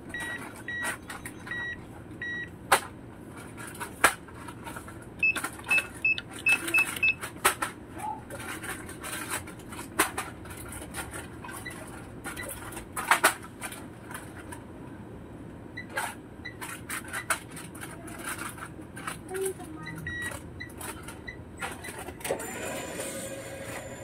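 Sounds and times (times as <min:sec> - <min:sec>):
scattered clicks and knocks: 0:02.7 - 0:14.6
short electronic beeps: 0:05.2 - 0:07.2.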